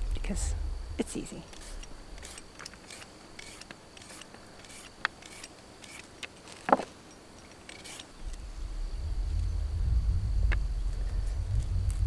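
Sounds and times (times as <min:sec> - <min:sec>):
low rumble: 0:00.0 - 0:02.5, 0:08.2 - 0:12.0.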